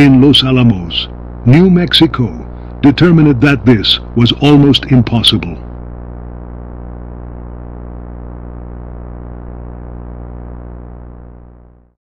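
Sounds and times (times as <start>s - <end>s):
low synthesizer drone: 0.0s - 11.8s.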